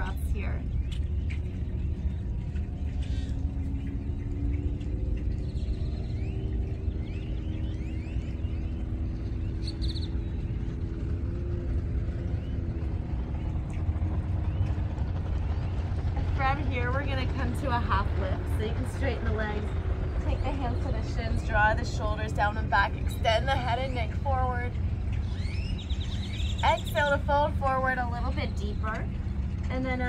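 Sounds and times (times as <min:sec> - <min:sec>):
faint engine hum: 0:00.0 - 0:30.0
low outdoor rumble: 0:00.0 - 0:30.0.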